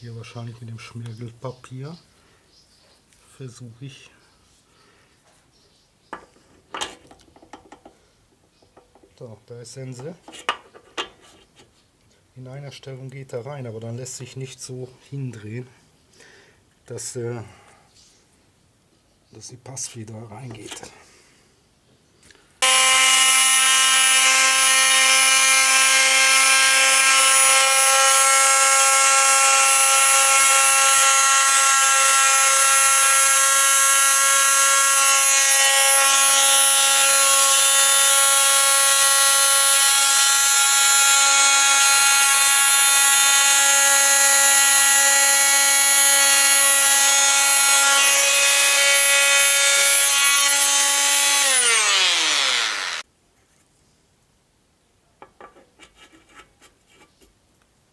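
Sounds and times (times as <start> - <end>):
electric sander whining: 22.6 - 53.0.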